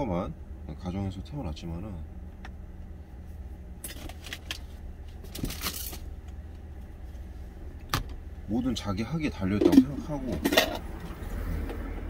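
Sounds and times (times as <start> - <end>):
low engine hum: 0.0 - 12.0
metal container clattering: 9.6 - 10.8.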